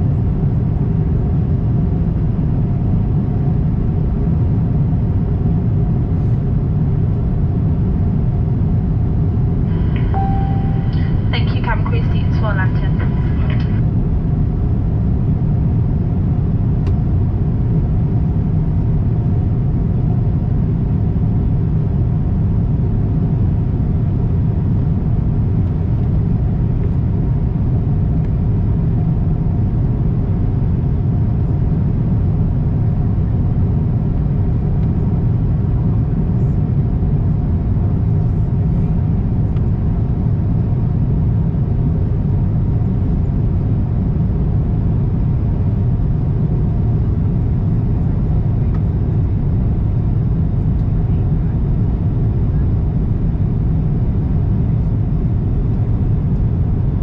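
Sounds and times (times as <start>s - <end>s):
airplane cabin rumble: 0.0s - 57.0s
faint steady tones: 9.7s - 13.9s.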